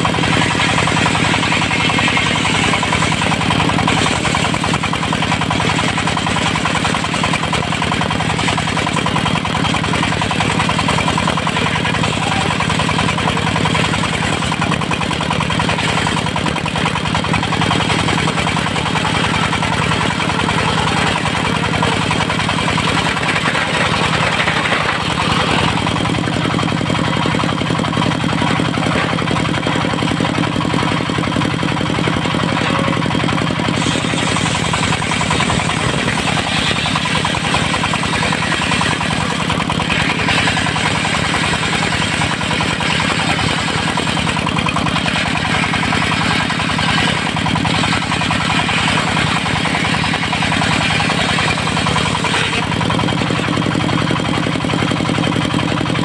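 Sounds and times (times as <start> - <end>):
saw blade cutting log: 0.0 - 55.0
diesel engine running: 0.0 - 56.0.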